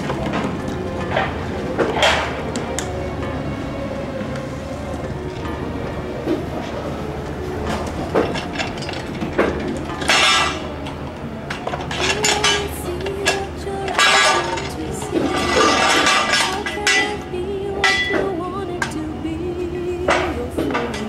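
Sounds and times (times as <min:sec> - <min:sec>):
metal hooks and shackles clinking: 0:07.7 - 0:17.2.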